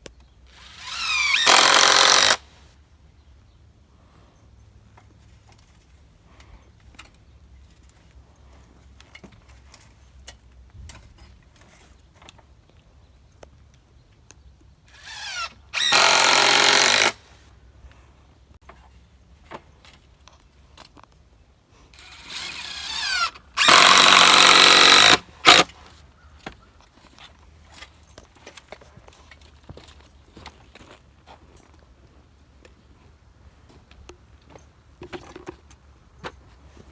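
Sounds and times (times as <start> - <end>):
cordless drill driving screws into wood: 0.5 - 2.4, 14.9 - 17.2, 22.0 - 25.8.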